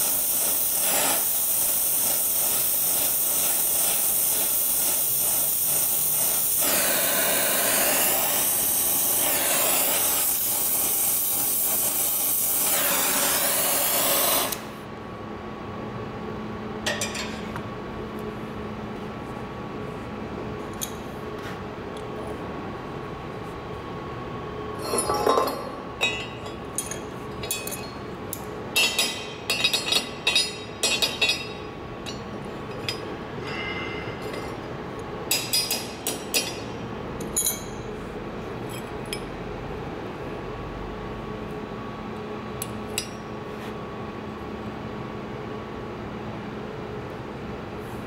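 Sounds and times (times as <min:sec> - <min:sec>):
metal pipes clinking: 0:24.8 - 0:28.1, 0:28.8 - 0:34.6, 0:35.3 - 0:37.9.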